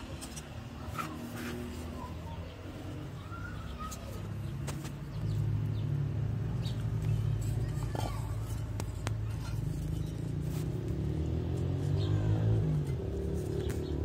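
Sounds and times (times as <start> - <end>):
low engine hum: 0.0 - 14.0
faint bird calls: 0.7 - 5.4.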